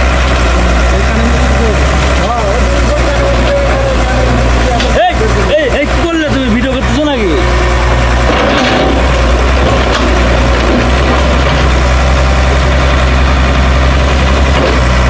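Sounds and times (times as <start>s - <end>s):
excavator diesel engine droning: 0.0s - 15.0s.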